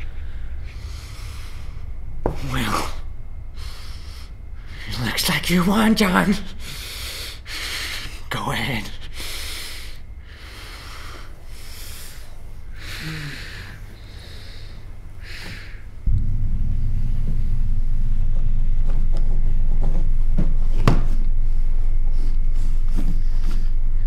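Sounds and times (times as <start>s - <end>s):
man breathing heavily through nose: 0.0s - 2.0s, 3.5s - 4.9s, 6.5s - 8.3s, 9.0s - 16.1s
loud low rumble: 16.0s - 24.0s.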